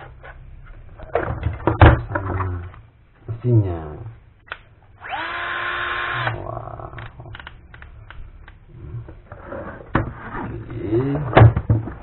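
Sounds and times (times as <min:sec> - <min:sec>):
cordless drill motor whirring: 0:05.0 - 0:06.4.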